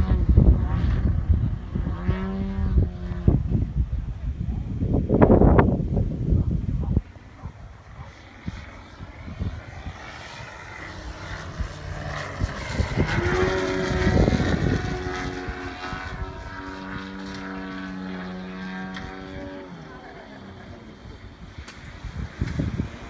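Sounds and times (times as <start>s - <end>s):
model plane engine and propeller: 0.0s - 23.0s.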